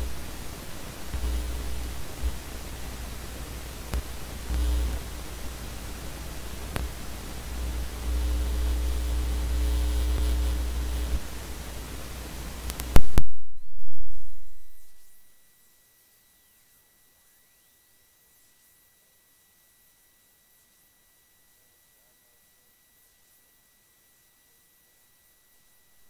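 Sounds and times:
microphone hiss and low hum: 0.0 - 18.8
faint steady tones: 0.0 - 26.0
clicks: 6.7 - 7.0, 12.6 - 13.6.

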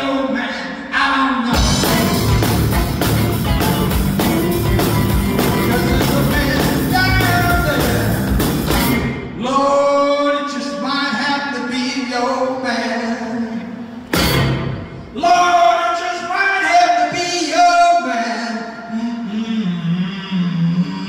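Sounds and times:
blues-rock band playing: 1.6 - 9.4, 14.1 - 15.0.

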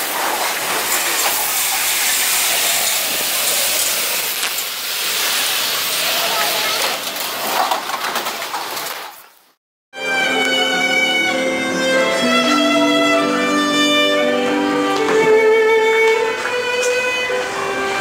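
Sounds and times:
solo violin melody: 10.0 - 18.0.

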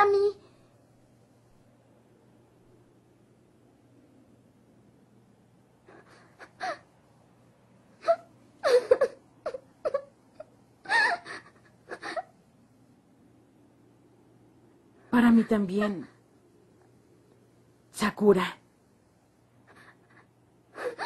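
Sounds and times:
girl sobbing and whimpering: 5.9 - 7.0, 8.0 - 12.4, 19.6 - 21.0.

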